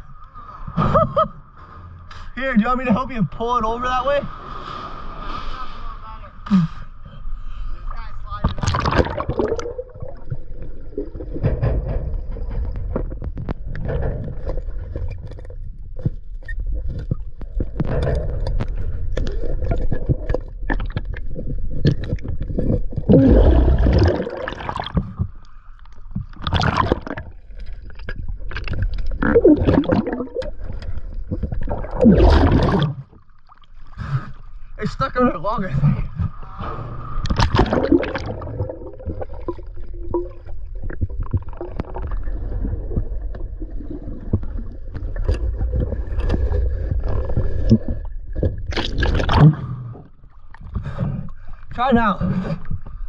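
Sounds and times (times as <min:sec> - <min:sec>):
loud water splashes: 0:31.7 - 0:33.1, 0:37.2 - 0:39.6.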